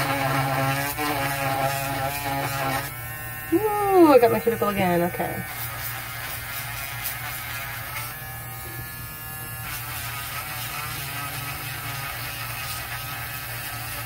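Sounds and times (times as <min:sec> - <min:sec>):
electric nail drill whining: 0:00.0 - 0:14.0.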